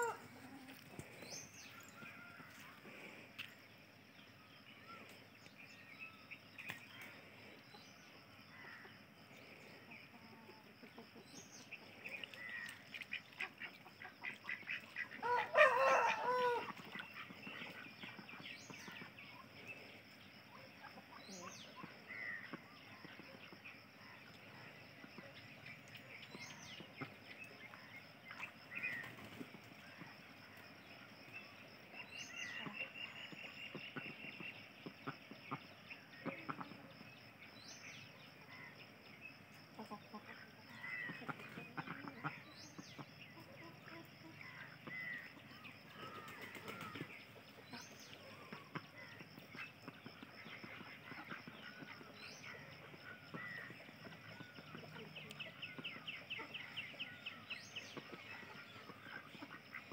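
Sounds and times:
ducks flapping wings: 0:46.0 - 0:47.1.

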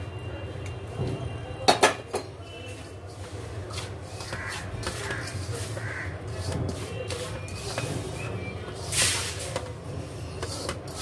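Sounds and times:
hands rubbing dough in bowl: 0:03.1 - 0:09.1, 0:10.3 - 0:11.0.

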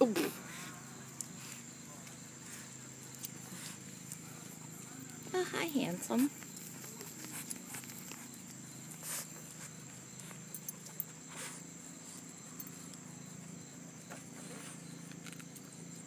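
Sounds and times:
dog snuffling in grass: 0:03.4 - 0:04.8, 0:06.7 - 0:10.5, 0:11.2 - 0:12.4.

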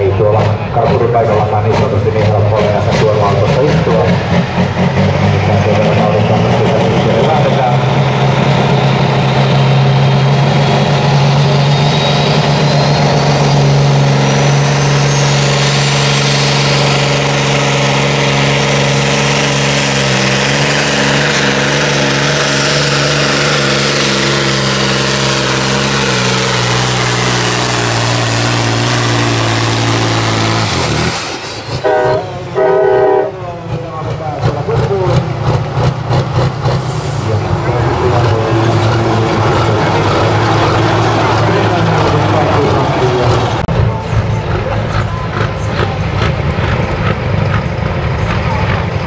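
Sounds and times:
diesel engine at full throttle: 0:00.0 - 0:49.0
horn blowing: 0:31.8 - 0:33.4.

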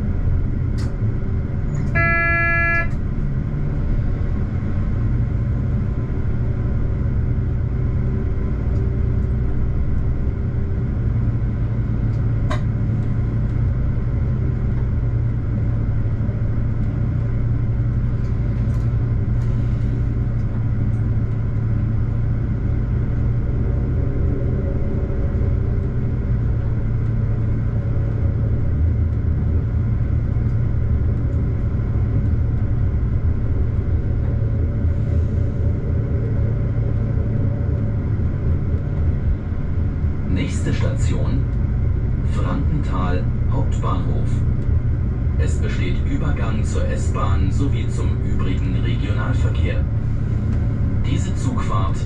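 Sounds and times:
train rumbling on track: 0:00.0 - 0:52.0
train horn toot: 0:01.8 - 0:03.0.

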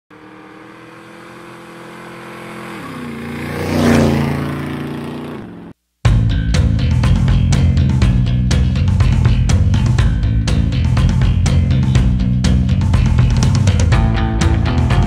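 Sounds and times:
vehicle engine passing by: 0:00.1 - 0:05.8.

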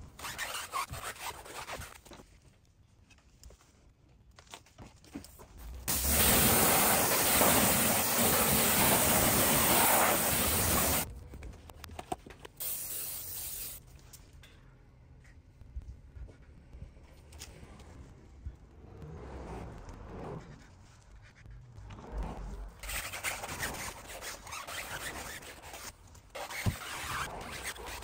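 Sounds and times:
hose nozzle spraying water: 0:05.9 - 0:11.0, 0:12.6 - 0:13.8
foam sprayer hissing: 0:05.9 - 0:11.1, 0:12.6 - 0:13.8.

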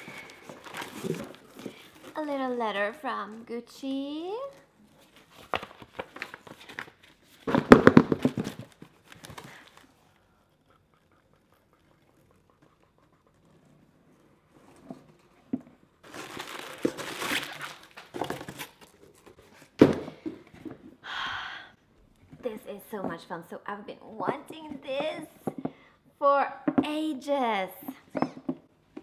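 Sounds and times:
paper and cardboard crinkling: 0:00.0 - 0:03.4, 0:04.4 - 0:10.0, 0:16.0 - 0:19.8.

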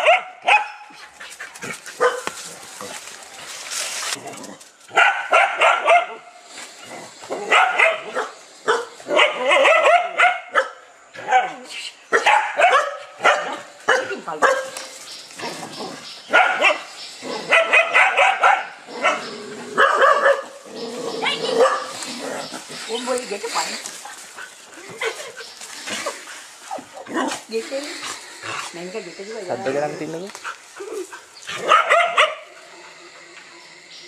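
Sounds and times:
dogs barking: 0:00.0 - 0:01.0, 0:01.7 - 0:02.5, 0:04.9 - 0:06.3, 0:07.3 - 0:23.7, 0:30.4 - 0:32.8.

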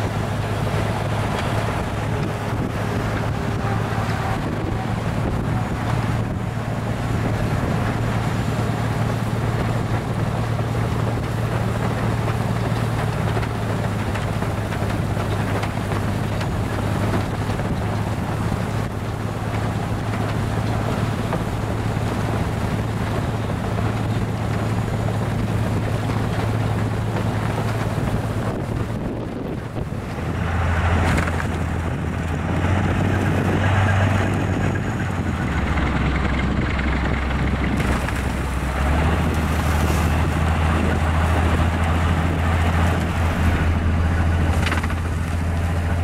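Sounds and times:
low engine hum: 0:00.0 - 0:46.0.

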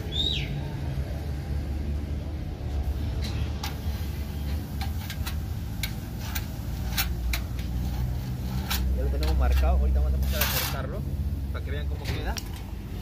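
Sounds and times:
scriber scratching on steel sheet: 0:06.1 - 0:11.0.

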